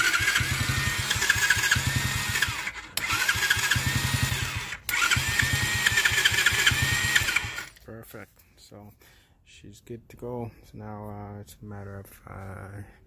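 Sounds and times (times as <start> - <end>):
small engine starting: 0.0 - 7.8.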